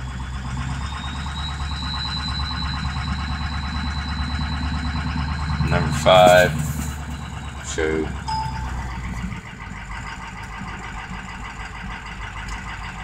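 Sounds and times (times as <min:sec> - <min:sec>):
diesel engine idling roughly: 0:00.0 - 0:13.0
short beep: 0:08.3 - 0:09.0.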